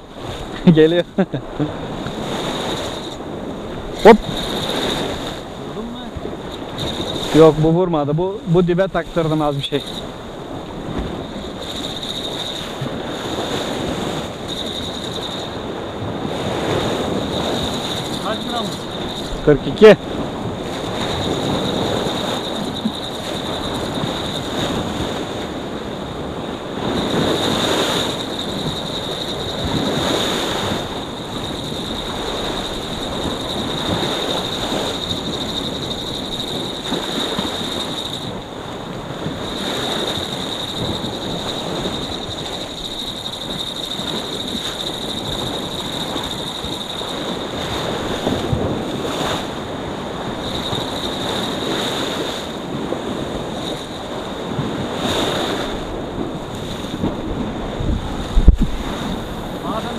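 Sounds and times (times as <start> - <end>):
sea surf on rocky shore: 0.0 - 59.9
wind buffeting microphone: 0.0 - 59.9.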